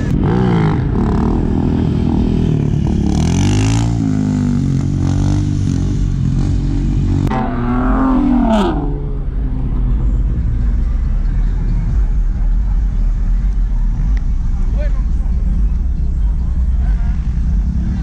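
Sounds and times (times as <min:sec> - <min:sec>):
motorcycle engine revving: 0:00.0 - 0:18.0
car engine accelerating past: 0:07.2 - 0:10.5.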